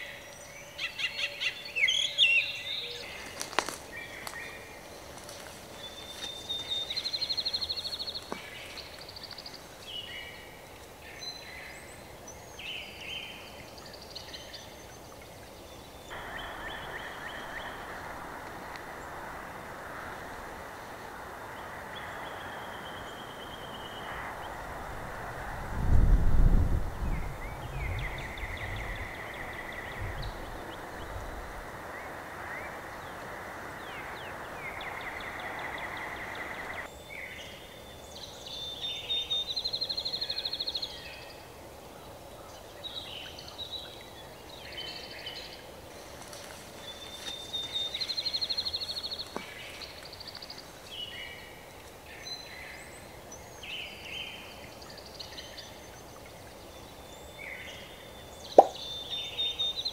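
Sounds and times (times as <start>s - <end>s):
songbirds singing: 0.0s - 59.9s
steady hiss: 2.9s - 27.5s.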